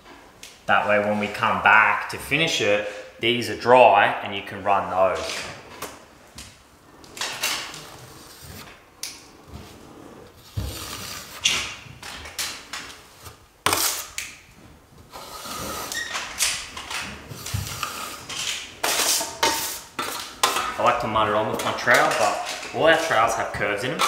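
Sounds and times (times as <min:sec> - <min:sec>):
trowel scraping joint compound: 0:07.2 - 0:08.8, 0:09.6 - 0:14.3, 0:15.1 - 0:24.0.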